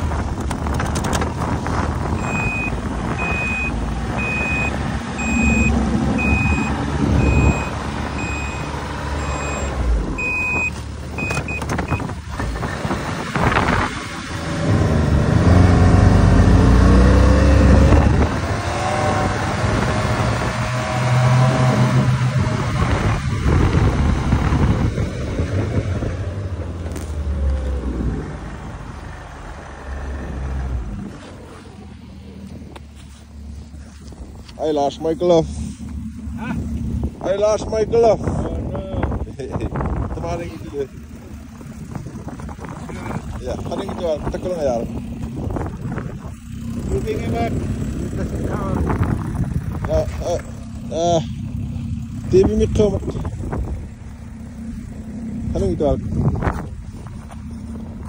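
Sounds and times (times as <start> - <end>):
high repeating beep: 2.2 - 12.0
snowmobile engine running: 35.0 - 58.0.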